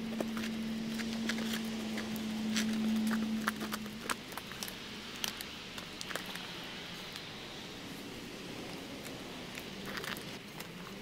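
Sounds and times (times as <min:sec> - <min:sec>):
boots and hands scraping bark: 0:00.0 - 0:11.0
steady low hum: 0:00.0 - 0:11.0.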